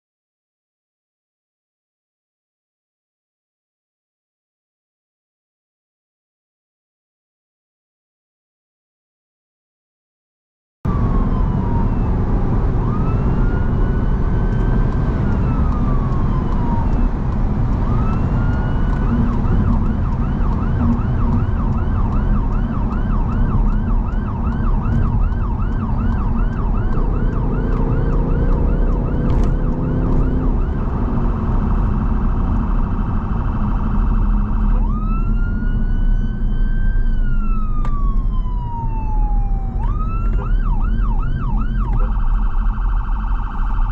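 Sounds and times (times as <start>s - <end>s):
ambulance siren: 10.9s - 43.9s
engine and road noise: 10.9s - 43.9s.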